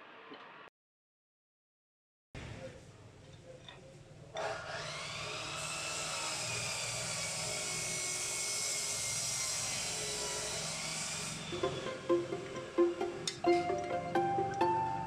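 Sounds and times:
electric drill motor running: 4.4s - 13.4s.

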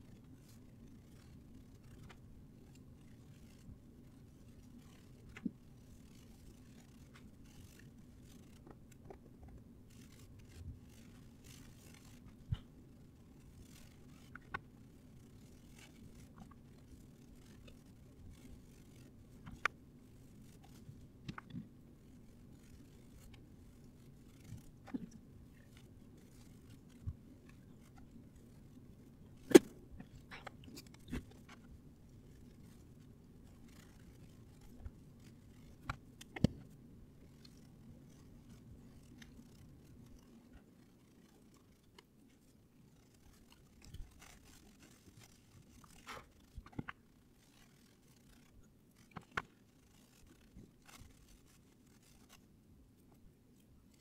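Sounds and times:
tool clicks and snips: 29.4s - 31.2s.

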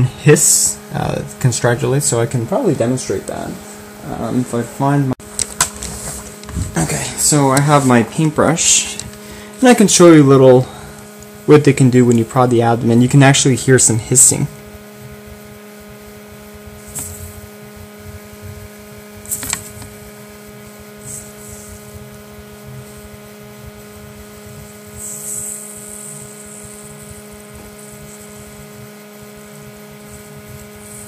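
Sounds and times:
electrical hum: 0.0s - 31.0s
tarantula hissing: 16.8s - 17.6s, 21.0s - 31.0s.

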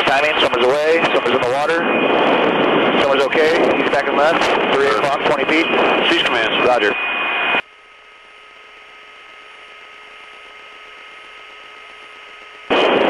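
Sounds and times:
radio and aircraft noise: 0.0s - 13.0s
thin electrical hum: 7.0s - 13.0s.

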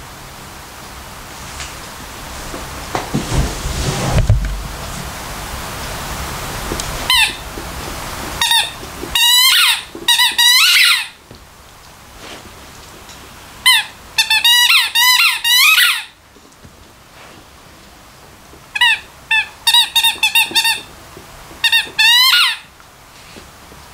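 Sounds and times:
rubber squeaky toy squeaking: 7.1s - 7.4s, 8.4s - 11.2s, 13.7s - 16.1s, 18.8s - 20.9s, 21.6s - 22.7s.

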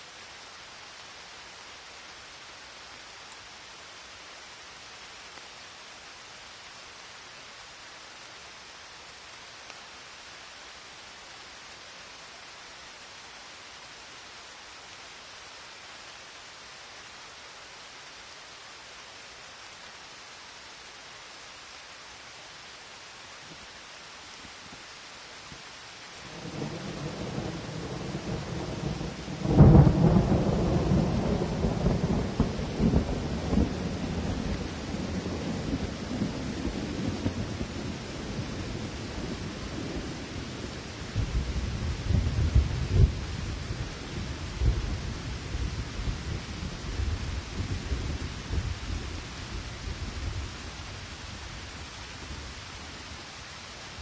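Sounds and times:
steady rain: 0.0s - 54.0s
thunder rumble: 41.1s - 43.8s.

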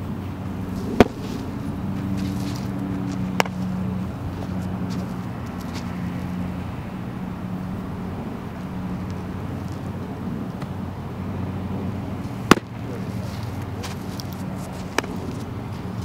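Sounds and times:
low engine hum: 0.0s - 16.0s
baseball smacking into mitt: 0.6s - 3.8s, 12.3s - 15.5s.

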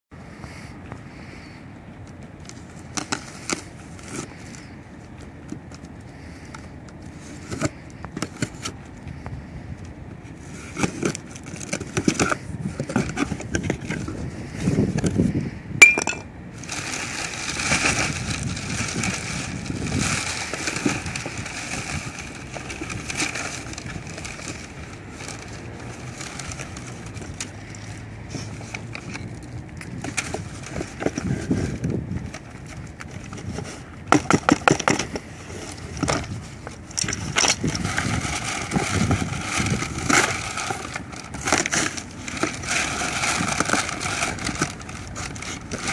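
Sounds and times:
tape and cardboard rustling: 1.1s - 45.9s
plastic wrapping crinkling: 15.8s - 45.9s.

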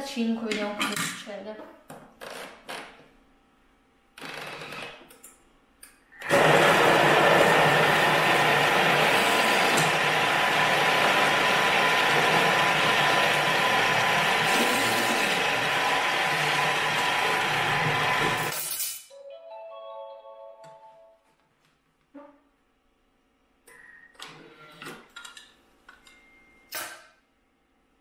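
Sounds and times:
kitchen machine whirring: 6.1s - 18.7s.

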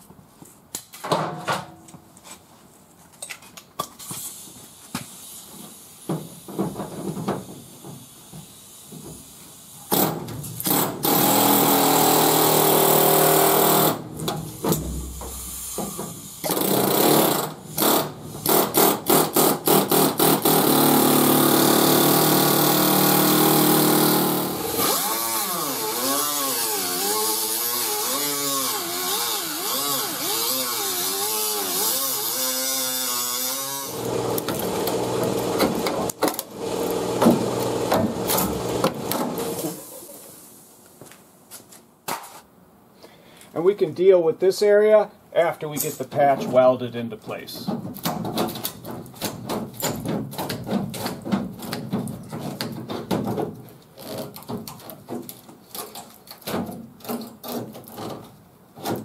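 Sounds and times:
air hammer cutting sheet metal: 9.9s - 39.8s
die grinder whine: 20.4s - 39.8s.

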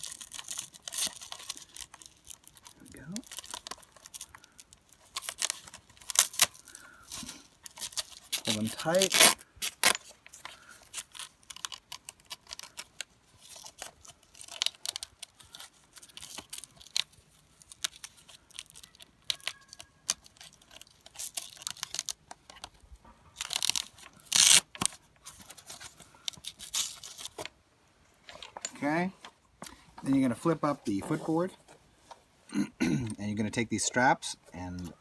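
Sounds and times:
velcro straps ripping: 0.0s - 22.8s, 23.4s - 27.5s.

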